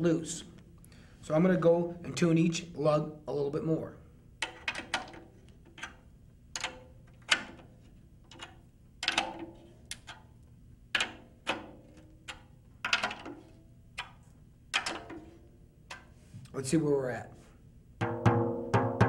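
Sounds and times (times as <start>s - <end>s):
drum key clicking on tension rods: 6.6s - 10.3s, 10.9s - 16.1s.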